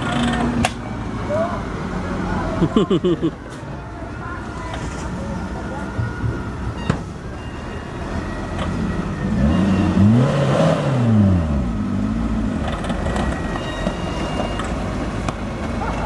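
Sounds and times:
pickup engine revving: 8.8s - 13.0s.

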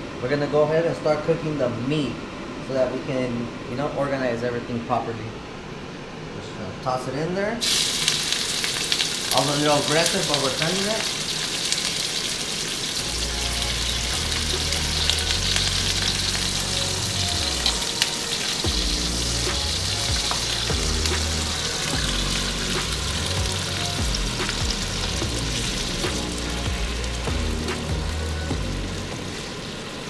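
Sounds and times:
meat sizzling in a wok: 7.6s - 30.0s
background music with bass: 13.0s - 29.7s.

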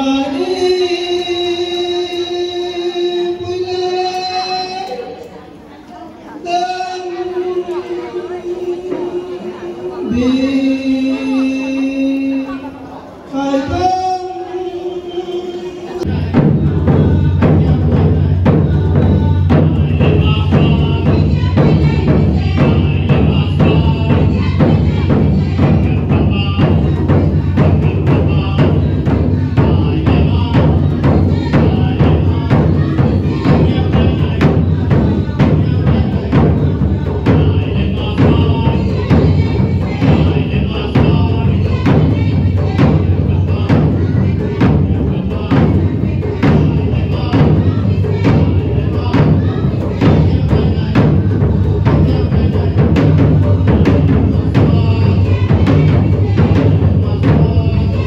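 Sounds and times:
fast percussion beat: 16.0s - 58.0s.

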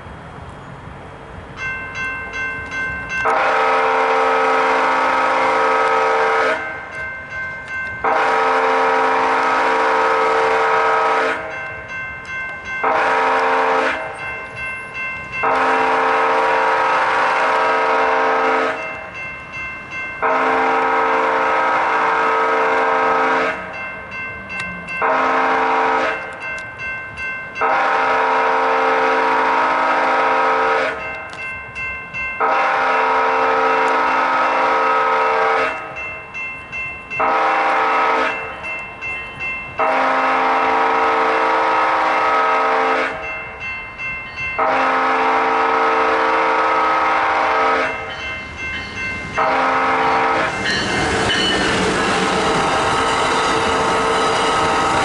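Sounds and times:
crossing warning bell ringing: 0.0s - 55.0s
train horn blasts: 3.2s - 6.8s, 8.0s - 11.6s, 12.8s - 14.2s, 15.4s - 19.0s, 20.2s - 23.8s, 25.0s - 26.4s, 27.6s - 31.2s, 32.4s - 36.0s, 37.2s - 38.6s, 39.8s - 43.4s, 44.6s - 48.2s, 49.4s - 51.6s.

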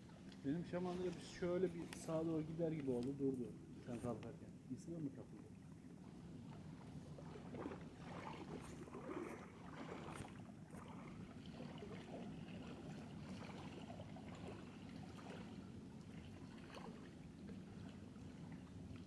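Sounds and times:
low steady rumble: 0.0s - 19.0s
small waves lapping: 0.0s - 19.0s
light splashes: 5.0s - 19.0s.

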